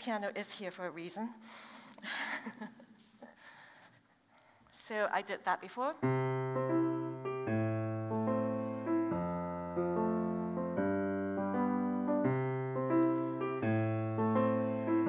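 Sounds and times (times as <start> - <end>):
piano playing slow chords: 6.0 - 15.0.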